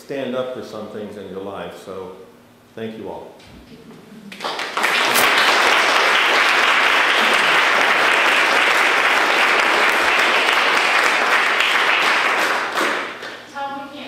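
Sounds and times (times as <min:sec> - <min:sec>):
audience applauding: 0:04.3 - 0:13.5.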